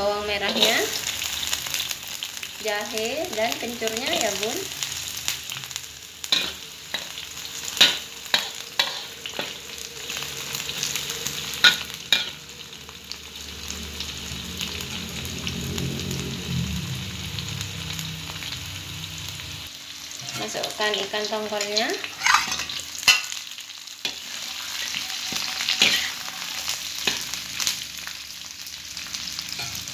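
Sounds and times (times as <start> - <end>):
spatula scraping wok: 0.0 - 1.9, 3.6 - 15.2, 20.0 - 29.9
aromatics sizzling in hot oil: 0.0 - 29.9.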